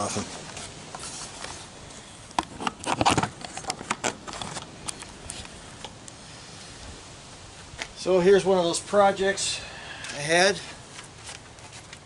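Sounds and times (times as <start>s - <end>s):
camera rubbing against shirt: 0.0s - 1.7s.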